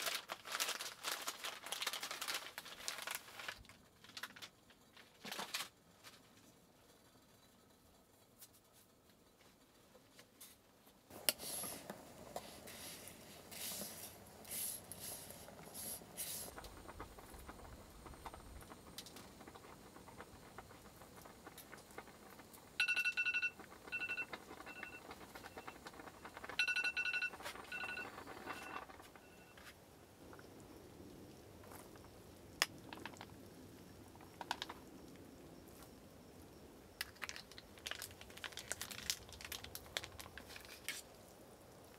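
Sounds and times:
eggshell cracking and crinkling: 0:37.0 - 0:41.2.

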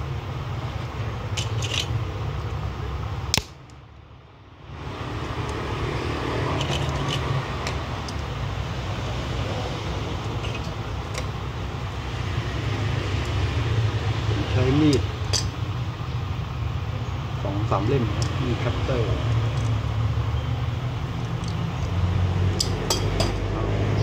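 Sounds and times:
sharp click: 0:03.3 - 0:03.8.

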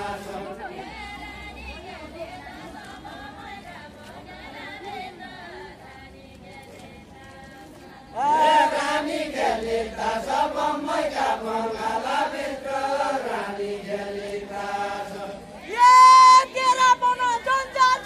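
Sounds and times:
men singing folk song: 0:00.0 - 0:01.0, 0:07.3 - 0:16.3.

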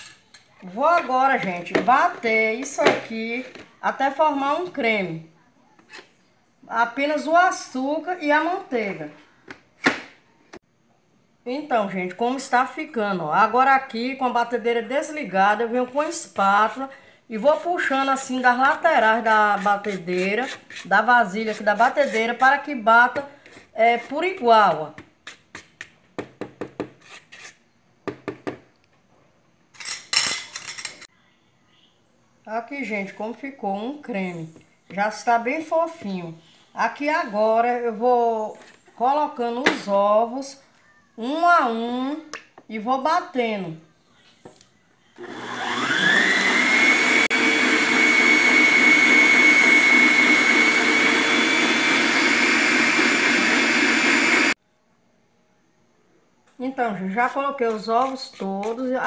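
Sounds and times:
spatula scraping a mixer bowl: 0:18.2 - 0:24.5, 0:26.9 - 0:27.6, 0:57.6 - 0:59.0
whisk beating batter: 0:18.6 - 0:22.5
stand mixer whining: 0:45.2 - 0:54.5.

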